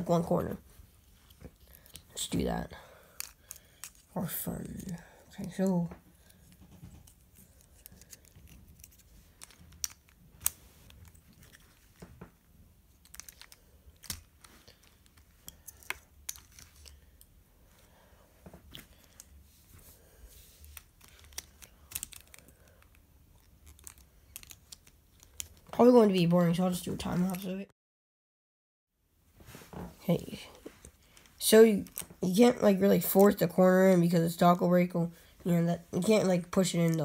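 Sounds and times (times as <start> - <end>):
plastic puzzle pieces clicking: 3.2 - 4.1, 6.6 - 11.8, 12.9 - 17.3, 20.7 - 25.7.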